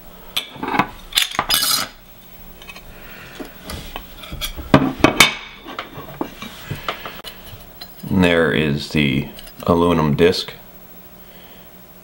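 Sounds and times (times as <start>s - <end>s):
metal parts clinking and scraping: 0.6s - 2.0s.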